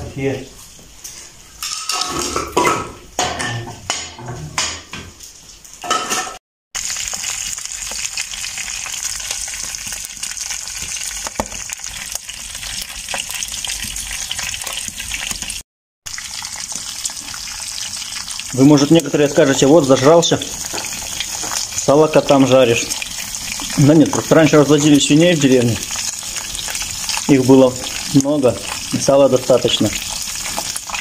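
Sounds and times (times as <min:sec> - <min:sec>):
pork fat sizzling in a pan: 0:06.8 - 0:31.0.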